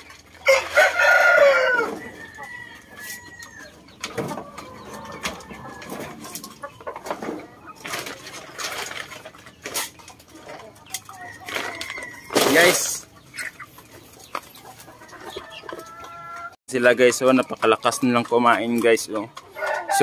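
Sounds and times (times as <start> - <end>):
chickens clucking: 0.0 - 20.0
chickens pecking at feed: 0.0 - 20.0
rooster crowing: 0.4 - 3.7, 19.6 - 20.0.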